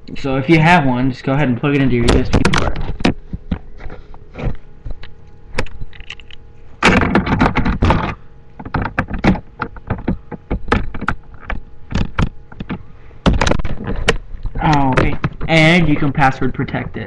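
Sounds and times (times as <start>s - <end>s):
sharp clicks and knocks: 1.7s - 17.0s.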